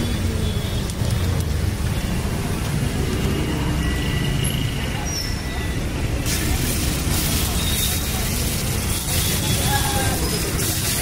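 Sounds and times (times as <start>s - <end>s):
peanuts sizzling in hot oil: 6.0s - 11.0s.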